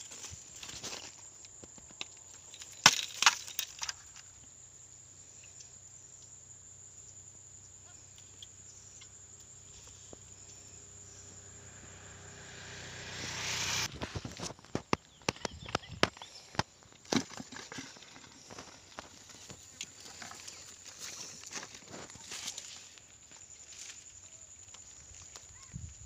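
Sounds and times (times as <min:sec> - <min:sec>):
reeds rustling: 0:17.9 - 0:25.6.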